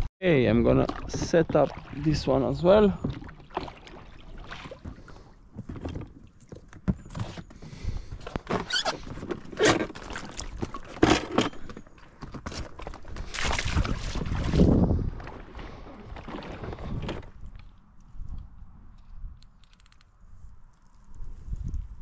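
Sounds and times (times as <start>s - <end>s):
oar splashing in water: 0.5s - 7.4s, 8.4s - 17.4s
oar knocking and scraping boat: 0.5s - 17.5s.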